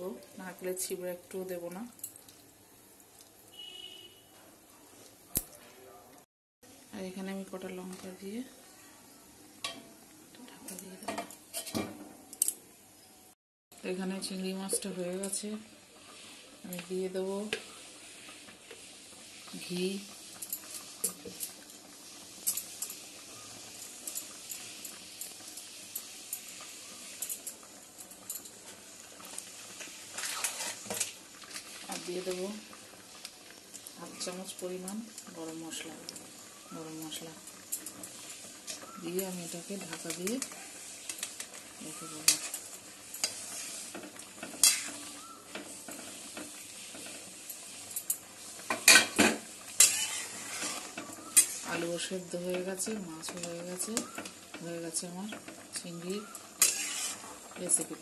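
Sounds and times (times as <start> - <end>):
curry bubbling and popping: 0.0 - 4.2, 14.7 - 58.0
spoon scraping metal pan: 29.8 - 32.2, 37.8 - 47.6, 48.6 - 52.6, 56.3 - 58.0.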